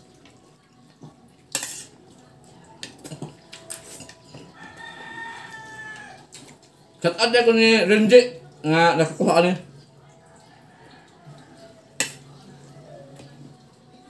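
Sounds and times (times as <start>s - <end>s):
cutlery clinking on plates: 1.0s - 2.0s, 2.8s - 5.2s, 11.2s - 12.5s
faint rooster crowing: 4.3s - 6.4s, 10.0s - 13.6s.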